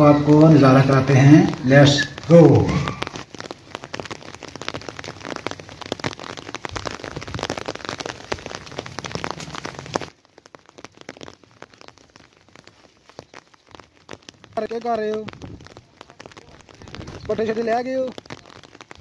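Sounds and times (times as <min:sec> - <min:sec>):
rain patter: 0:00.0 - 0:19.0.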